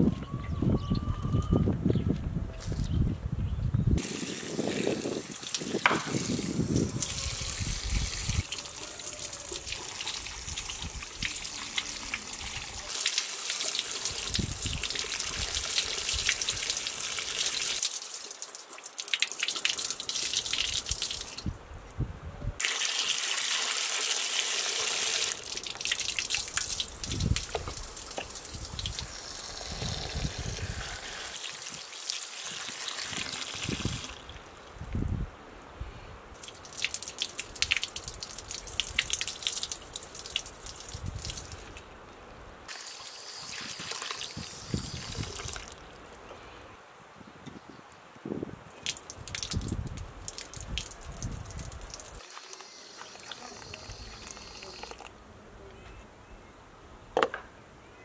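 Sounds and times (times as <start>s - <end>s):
water splashing onto concrete: 4.0s - 21.5s, 22.6s - 34.4s, 36.4s - 41.8s, 42.7s - 46.0s, 48.7s - 55.1s.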